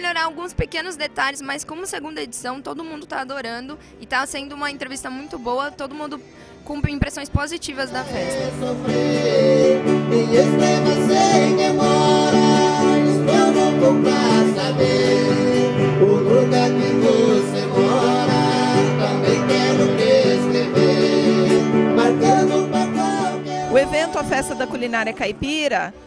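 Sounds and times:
guitar music: 0.0 - 25.9.

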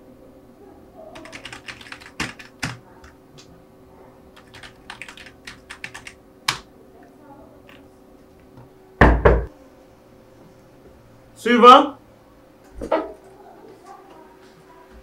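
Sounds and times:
computer keyboard typing: 1.1 - 3.5, 4.4 - 6.7.

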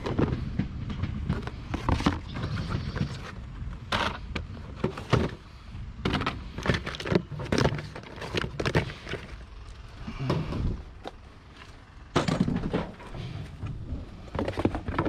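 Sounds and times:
knocks and clunks: 0.0 - 9.4, 10.1 - 11.2, 12.1 - 15.0
low rumble: 9.2 - 14.9.

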